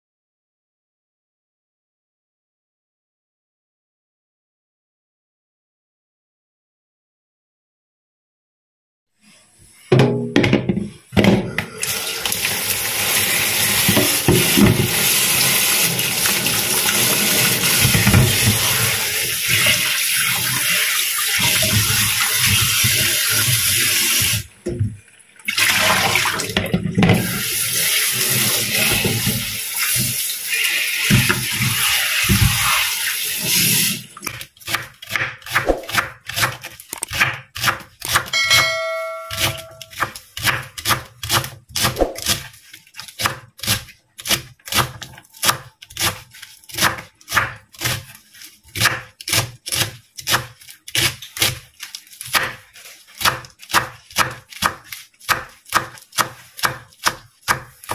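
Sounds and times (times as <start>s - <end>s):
tap water running into sink: 11.6s - 34.4s
short ringing tone: 38.4s - 40.0s
hands rubbing vegetables: 39.3s - 57.9s.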